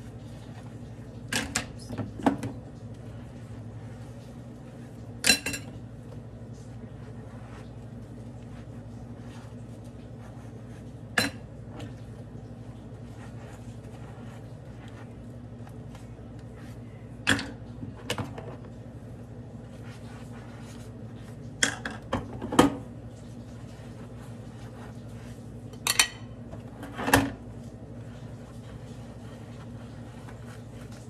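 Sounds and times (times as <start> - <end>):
steady low hum: 0.0 - 31.0
dishes clinking in a sink: 5.2 - 5.8, 11.1 - 11.5, 25.8 - 27.4.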